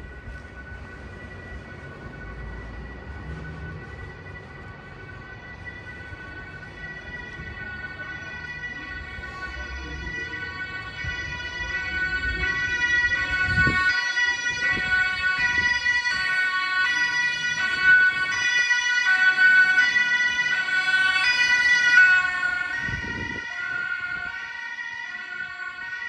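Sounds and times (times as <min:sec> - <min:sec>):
two-tone emergency siren: 0:00.0 - 0:26.0.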